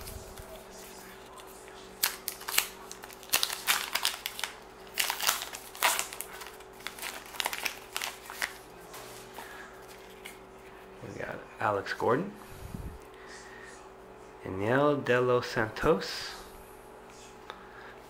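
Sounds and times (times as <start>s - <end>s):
card pack wrapper crinkling and tearing: 1.3s - 8.6s.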